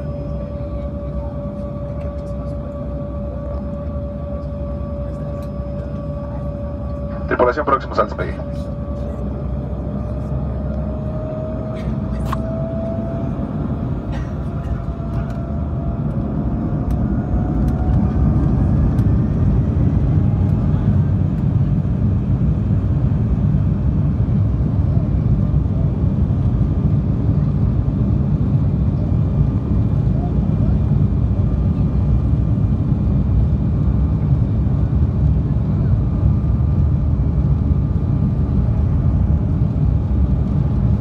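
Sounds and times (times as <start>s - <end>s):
thin rising engine whine: 0.0s - 26.5s
jet engines spooling up: 1.3s - 22.1s.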